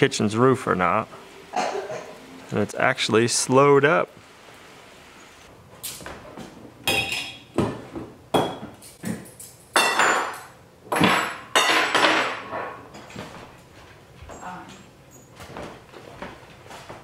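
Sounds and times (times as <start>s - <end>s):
metal pots and lids clanking: 6.8s - 7.6s, 9.7s - 13.1s.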